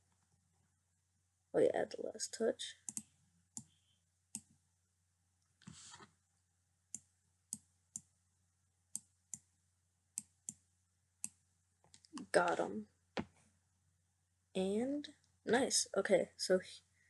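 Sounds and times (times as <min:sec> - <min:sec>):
computer mouse clicks: 0:02.9 - 0:04.5.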